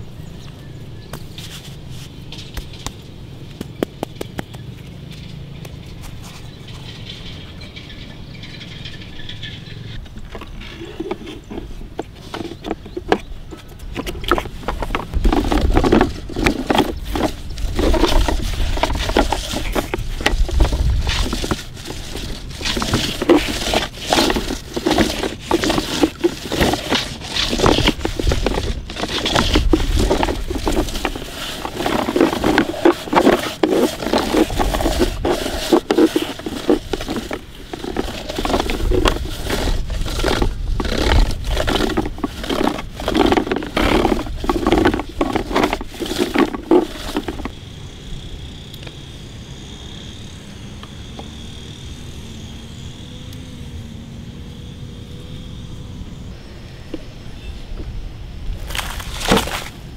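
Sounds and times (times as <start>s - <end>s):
toy roller crunching over sand: 1.1s - 48.4s, 56.9s - 59.9s
faint high hum: 47.6s - 58.6s.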